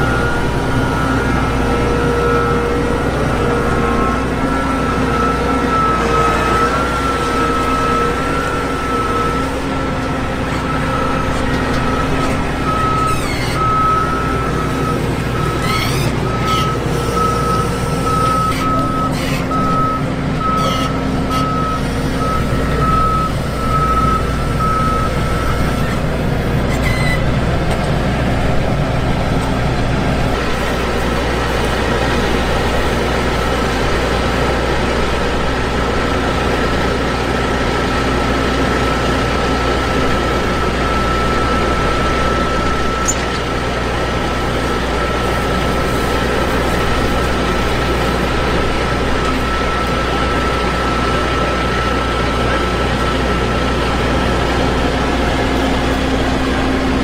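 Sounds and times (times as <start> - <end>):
high-pitched beeping alarm: 0.0 - 26.1, 38.8 - 46.4
combine harvester drone: 0.0 - 57.0.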